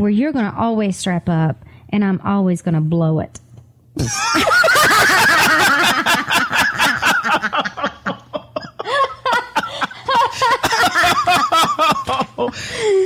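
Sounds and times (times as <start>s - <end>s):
women laughing: 4.0s - 13.0s.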